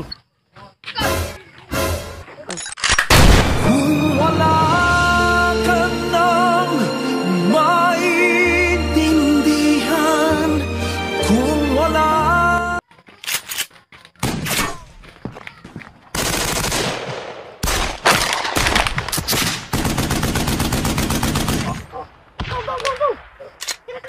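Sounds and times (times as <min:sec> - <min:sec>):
single gunshots: 0:03.0 - 0:03.8, 0:14.2 - 0:14.9, 0:16.6 - 0:19.7
rapid automatic gunfire: 0:16.1 - 0:17.8, 0:18.5 - 0:21.8.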